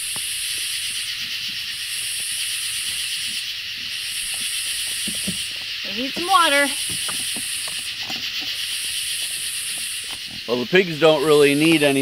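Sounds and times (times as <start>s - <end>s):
insects buzzing: 0.0s - 12.0s
shrill insect buzzing: 0.0s - 12.0s.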